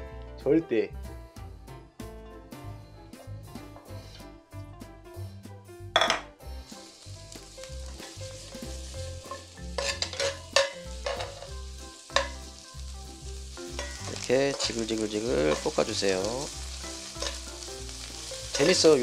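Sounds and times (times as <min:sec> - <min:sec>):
background music with steady beat: 0:00.0 - 0:19.0
pan clattering: 0:06.0 - 0:06.3, 0:09.2 - 0:12.5, 0:13.7 - 0:16.2, 0:16.9 - 0:17.5, 0:18.4 - 0:19.0
vegetables sizzling in oil: 0:06.5 - 0:19.0
spatula clacking against pan: 0:09.2 - 0:12.5, 0:13.7 - 0:14.8, 0:18.4 - 0:18.9.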